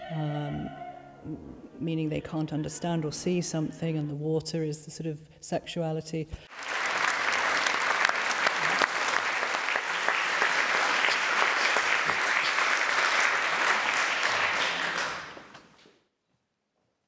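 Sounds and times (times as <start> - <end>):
audience applauding: 6.5 - 15.6.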